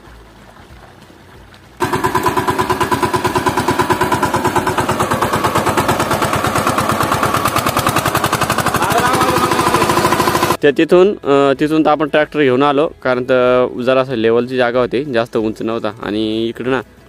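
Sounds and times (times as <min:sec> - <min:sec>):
diesel engine chugging: 0:01.8 - 0:10.6.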